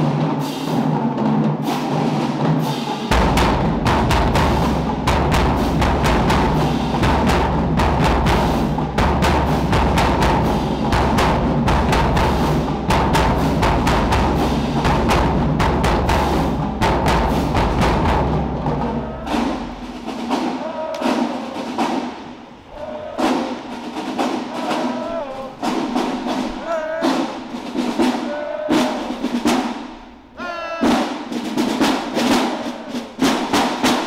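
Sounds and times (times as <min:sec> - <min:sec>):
drumline playing: 0:00.0 - 0:34.0
voices calling: 0:18.6 - 0:29.8, 0:30.4 - 0:34.0.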